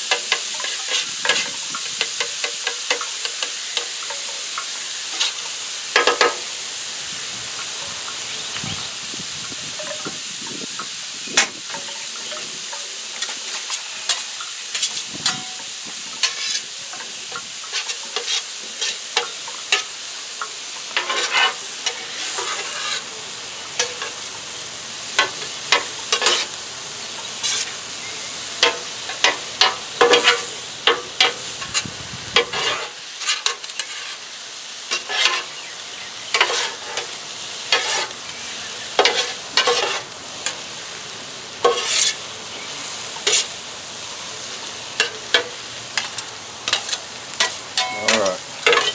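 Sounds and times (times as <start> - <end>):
fried rice sizzling on a griddle: 0.0 - 48.9
metal spatulas scraping a griddle: 0.1 - 4.5, 5.1 - 5.4, 13.1 - 15.6, 16.2 - 19.9, 20.8 - 23.1, 23.8 - 24.3, 25.1 - 26.6, 27.4 - 27.8, 28.6 - 34.3, 34.9 - 35.6, 36.3 - 38.2, 38.9 - 40.6, 41.6 - 42.3, 43.2 - 43.5, 45.0 - 48.9.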